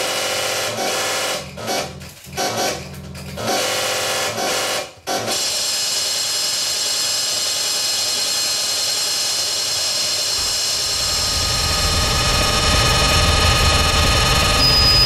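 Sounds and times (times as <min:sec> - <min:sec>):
synthesizer hiss with high tones: 0:05.6 - 0:15.0
low rumble: 0:10.4 - 0:15.0.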